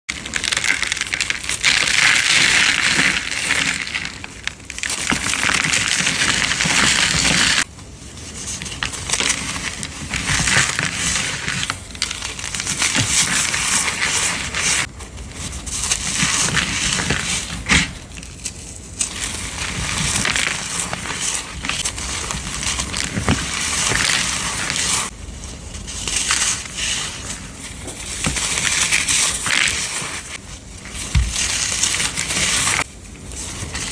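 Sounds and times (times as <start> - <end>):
brittle block crunching: 0.1 - 7.7.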